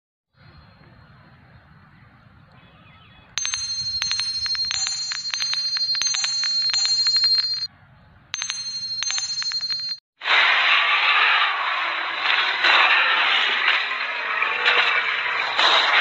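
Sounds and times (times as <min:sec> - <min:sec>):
rapid high-pitched bell dings: 0:03.4 - 0:07.7, 0:08.4 - 0:10.0.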